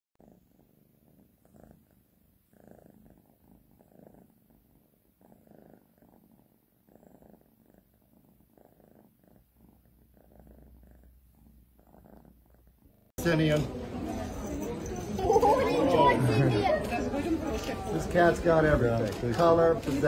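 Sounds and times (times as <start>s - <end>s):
cat purring softly: 0.2s - 13.1s.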